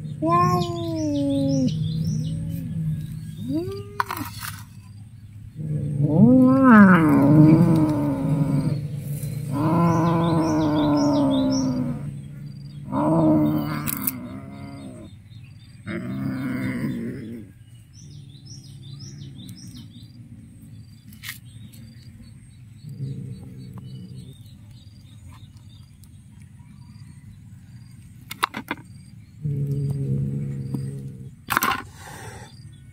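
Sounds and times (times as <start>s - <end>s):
cat growling and yowling: 0.0s - 4.3s, 5.6s - 12.2s, 12.8s - 15.1s, 15.8s - 17.5s
birds chirping faintly: 0.0s - 32.9s.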